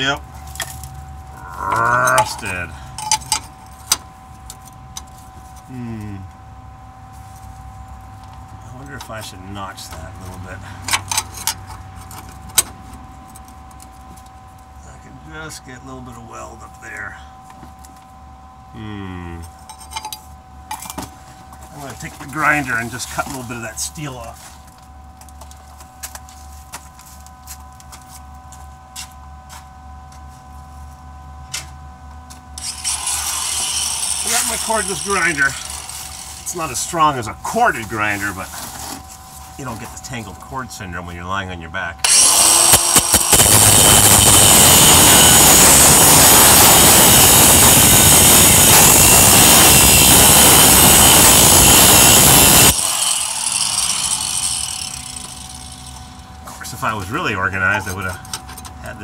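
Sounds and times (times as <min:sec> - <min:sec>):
faint whine: 0:00.0 - 0:32.5
low hum: 0:00.1 - 0:23.7
angle grinder cutting steel: 0:32.6 - 0:36.8, 0:42.0 - 0:56.3
grinder disc spinning down: 0:32.6 - 0:36.9, 0:42.0 - 0:56.3.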